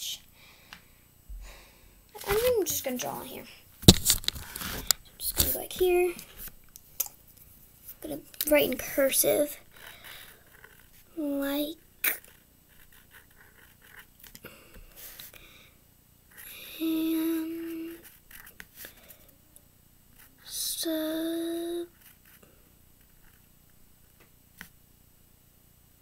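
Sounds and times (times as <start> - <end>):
marker scratching on paper: 12.0 - 14.1.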